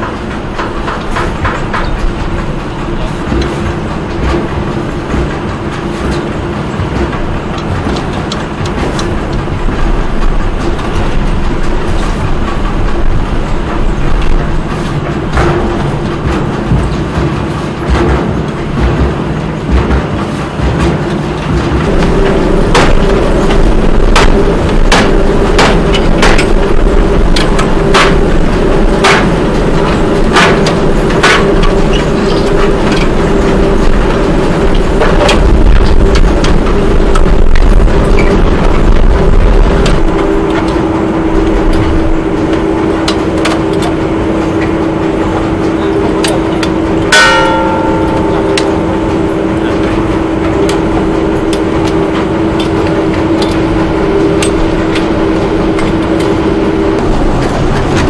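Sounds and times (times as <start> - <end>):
machine rumbling with hum: 0.0 - 58.0
sharp machine knocks: 0.6 - 40.8, 47.1 - 56.4
metal clang on steel: 47.1 - 49.4.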